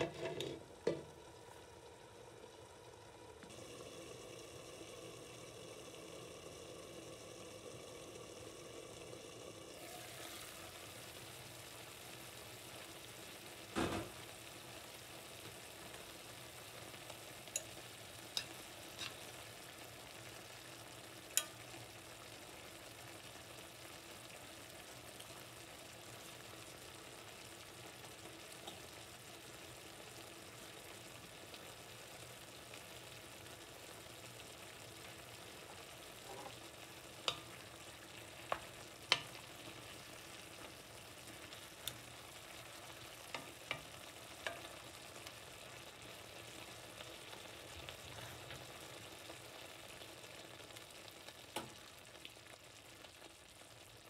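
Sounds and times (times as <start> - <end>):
vegetables sizzling in a pan: 0.0 - 54.0
metal utensil clicking on pan: 17.5 - 19.3, 21.3 - 21.8, 37.2 - 37.6, 38.4 - 39.5, 43.3 - 44.8.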